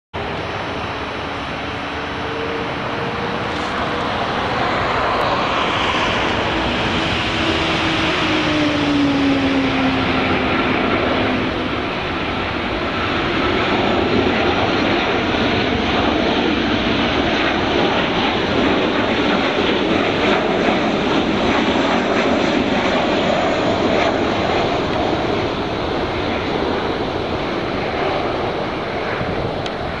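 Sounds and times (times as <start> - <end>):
jet flying past: 0.2 - 30.0.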